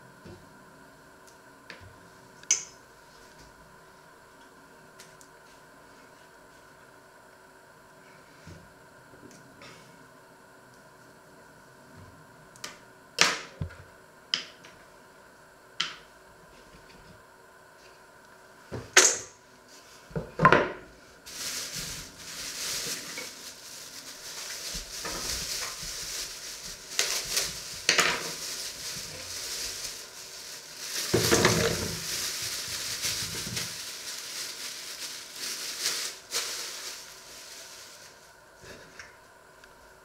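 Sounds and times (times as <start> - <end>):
plastic bag rustling: 21.2 - 39.0.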